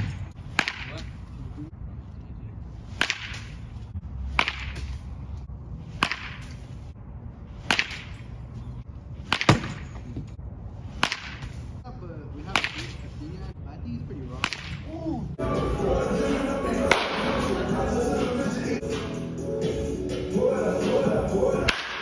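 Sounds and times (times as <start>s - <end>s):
baseball bat hitting balls: 0.0s - 1.6s, 2.8s - 11.8s, 12.4s - 13.1s, 14.2s - 15.1s, 16.9s - 17.6s, 20.1s - 22.0s.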